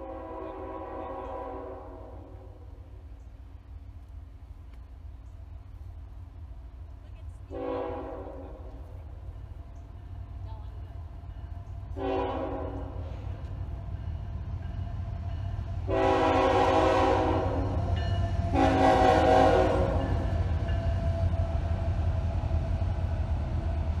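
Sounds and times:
locomotive air horn blasts: 0:00.0 - 0:02.6, 0:07.5 - 0:09.0, 0:12.0 - 0:13.4, 0:15.8 - 0:20.4
train rumbling past: 0:00.0 - 0:24.0.

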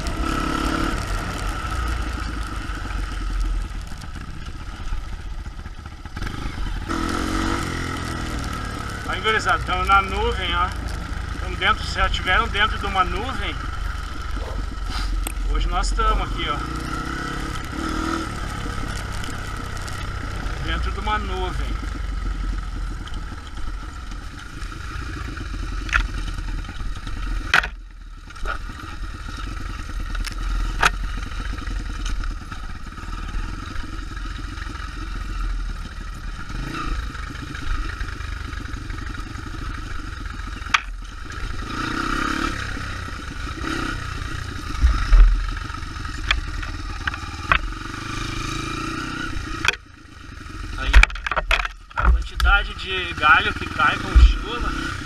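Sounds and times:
knocks and rattles over bumps: 0:00.0 - 0:33.8, 0:37.7 - 0:41.5, 0:44.5 - 0:47.8, 0:49.3 - 0:49.9, 0:50.8 - 0:53.0
motorcycle engine running: 0:00.0 - 0:55.0.

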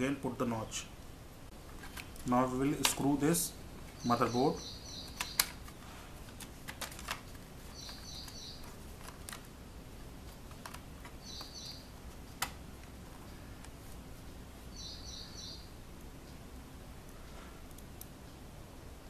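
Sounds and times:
clicks and taps of plastic parts: 0:05.1 - 0:09.5, 0:10.4 - 0:11.6.

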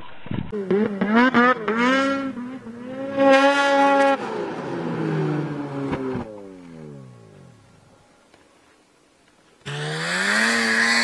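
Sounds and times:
snowmobile engine revving: 0:00.6 - 0:06.3, 0:09.6 - 0:11.0.

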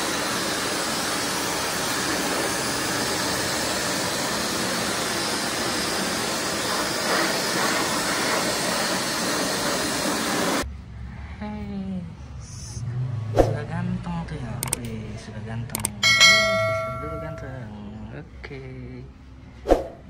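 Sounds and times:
pet blower blowing air: 0:00.0 - 0:10.6.

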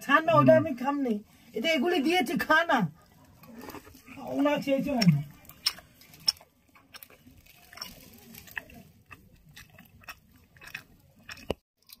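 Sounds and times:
person chewing food: 0:03.0 - 0:12.0
mouth clicks and smacks: 0:05.0 - 0:12.0.

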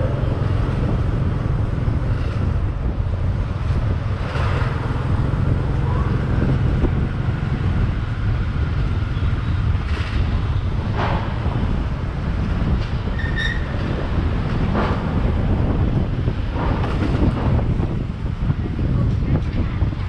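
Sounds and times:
traffic noises: 0:00.0 - 0:20.0
wind rumbling on microphone: 0:00.0 - 0:20.0.

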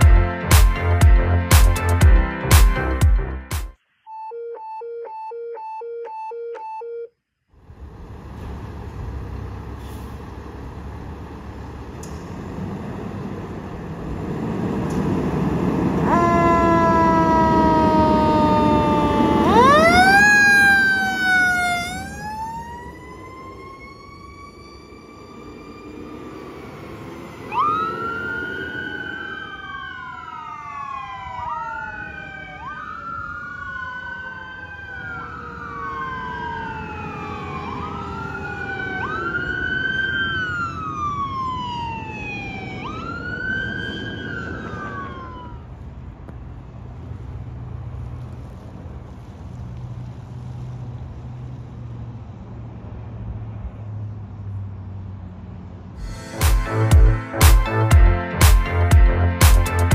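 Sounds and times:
electronic sirens wailing: 0:04.1 - 0:07.1, 0:15.4 - 0:45.8
diesel engine rumbling: 0:07.6 - 0:31.1
fire engine horn blast: 0:16.0 - 0:22.2.

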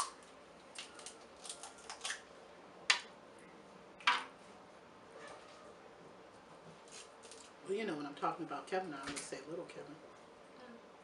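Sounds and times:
crab shells cracking: 0:00.0 - 0:02.3.

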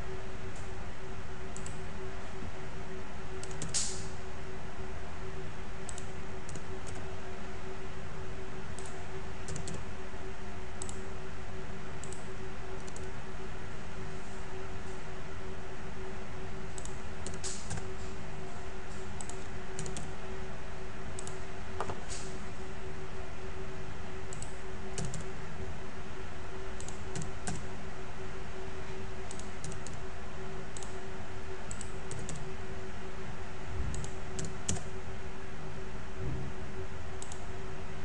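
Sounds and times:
low electrical hum: 0:00.0 - 0:38.0
keyboard keys clicking: 0:03.4 - 0:03.8, 0:08.8 - 0:09.8, 0:19.2 - 0:20.1, 0:24.3 - 0:25.3, 0:26.8 - 0:27.6, 0:31.7 - 0:32.5, 0:33.9 - 0:34.9.

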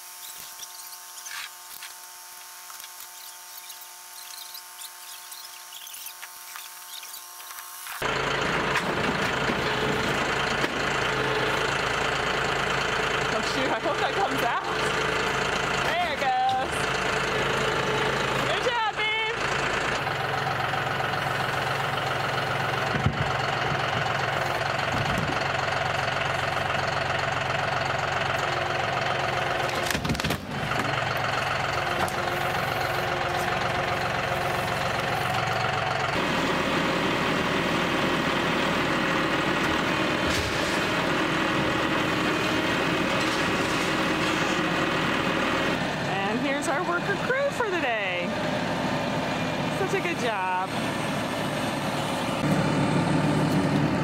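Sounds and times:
tractor diesel engine running: 0:06.8 - 0:54.0.

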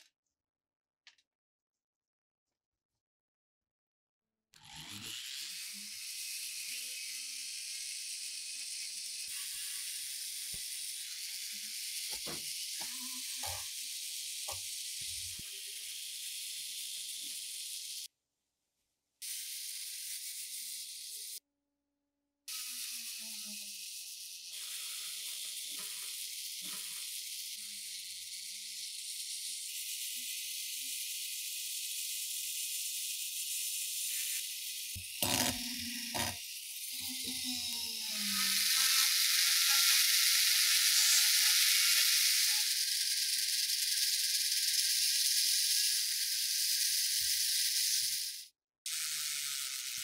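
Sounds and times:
rotary tool wire wheel brushing: 0:33.7 - 0:48.5.

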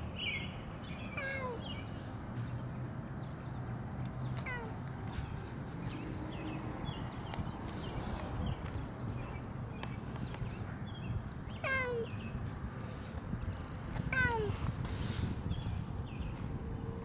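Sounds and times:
cat meowing: 0:01.2 - 0:01.6, 0:04.4 - 0:04.7, 0:11.6 - 0:12.1
stroller rolling on pavement: 0:05.8 - 0:17.0.

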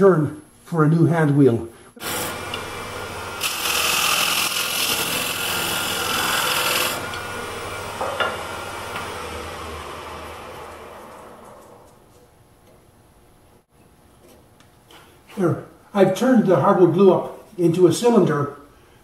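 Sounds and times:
lathe tool scraping wood: 0:02.0 - 0:12.1.

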